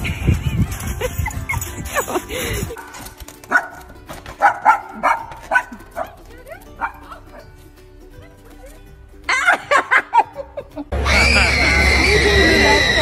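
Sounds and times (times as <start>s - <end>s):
small dog barking in yaps: 4.4s - 6.2s.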